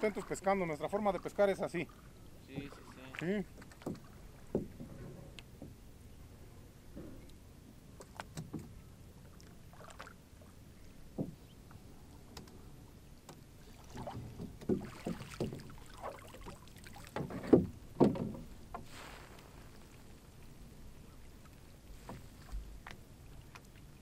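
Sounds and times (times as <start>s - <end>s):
water splashing: 0.0s - 4.8s, 9.2s - 11.5s, 13.6s - 24.0s
knocks against canoe hull: 3.6s - 5.0s, 11.1s - 11.4s, 14.0s - 15.8s, 17.0s - 18.9s.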